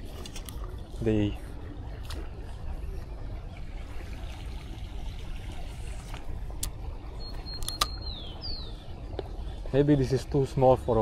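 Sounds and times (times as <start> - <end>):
low outdoor rumble: 0.0 - 11.0
sharp clicks: 7.6 - 8.0.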